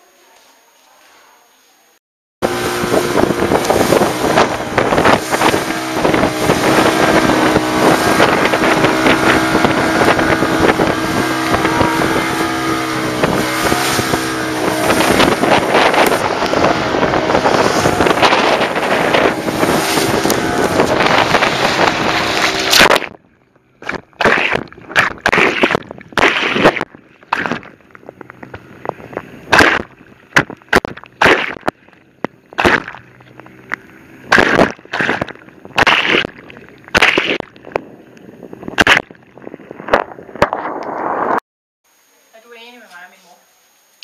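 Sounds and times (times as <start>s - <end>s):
rushing water: 2.4s - 23.2s
wind buffeting: 2.4s - 30.6s, 33.1s - 41.4s
motorboat engine running: 2.4s - 41.4s
water slapping against wooden hull: 2.5s - 23.2s, 23.8s - 37.8s.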